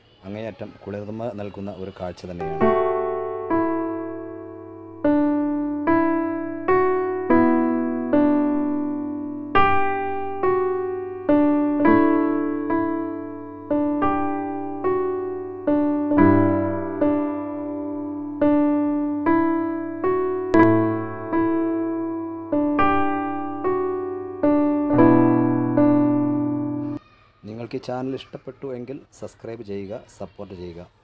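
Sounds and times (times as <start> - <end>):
slow solo keyboard melody: 2.4 - 27.0.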